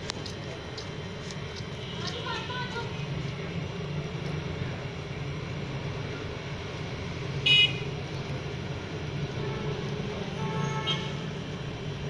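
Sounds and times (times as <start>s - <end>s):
low traffic rumble: 0.0s - 12.0s.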